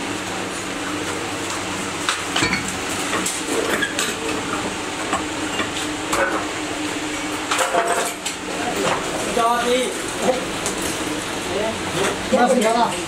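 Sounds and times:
low machine hum: 0.0 - 13.0.

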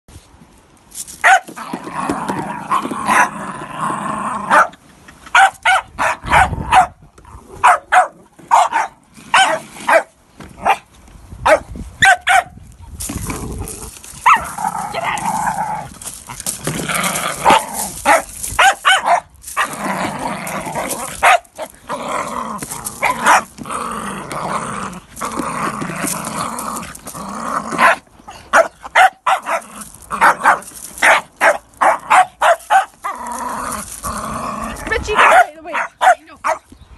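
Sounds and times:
dogs barking: 4.5 - 7.0, 7.6 - 10.8, 11.4 - 12.6, 17.4 - 19.7, 21.2 - 21.7, 27.8 - 33.2, 35.1 - 36.7
dogs growling: 13.2 - 18.3, 19.6 - 28.0, 33.0 - 35.3.

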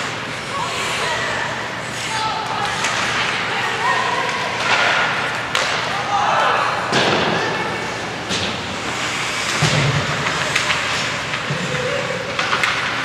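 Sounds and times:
hockey sticks knocking puck: 2.5 - 6.0, 8.2 - 13.0
skates scraping on ice: 7.8 - 13.0.

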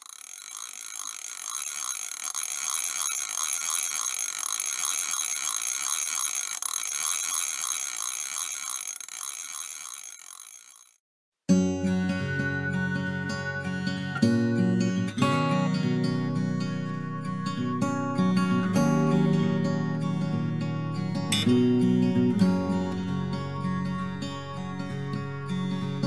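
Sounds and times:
mechanical whirr with clatter: 0.0 - 11.0.

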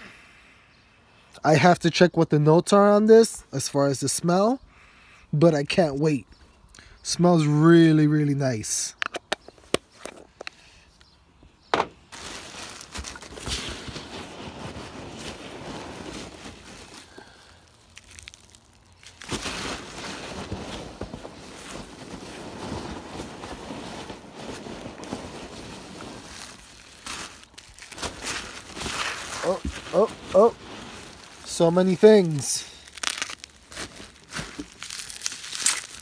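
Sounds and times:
packing peanuts rustling: 12.1 - 36.0.

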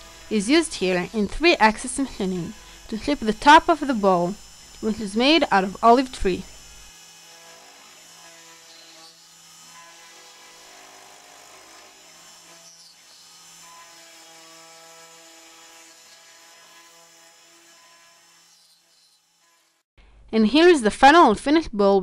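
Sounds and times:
router spindle whine milling wood: 0.0 - 16.9.

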